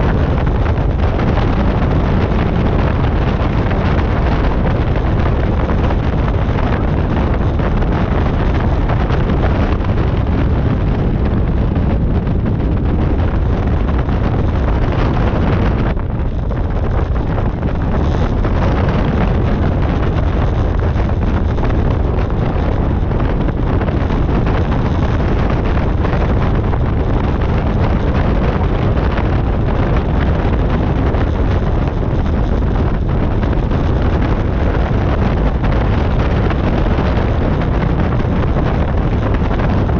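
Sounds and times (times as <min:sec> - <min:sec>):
light aircraft engine and propeller: 0:00.0 - 0:39.9
wind buffeting microphone: 0:00.0 - 0:39.9.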